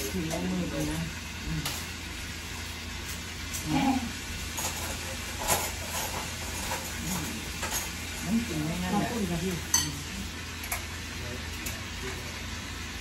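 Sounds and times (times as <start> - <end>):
cutlery clinking on plates: 9.7 - 10.0.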